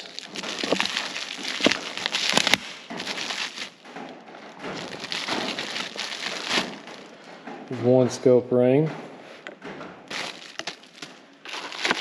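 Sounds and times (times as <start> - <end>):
plastic bag crinkling: 0.0 - 7.3, 10.1 - 12.0.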